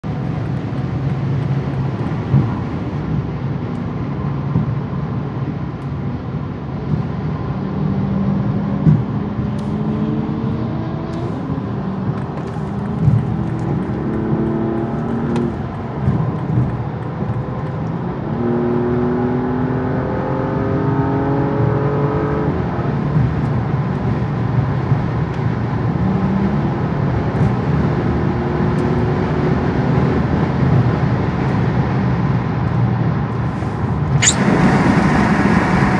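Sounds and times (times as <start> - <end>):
road noise inside car: 0.0 - 35.9
car engine accelerating: 7.4 - 26.1.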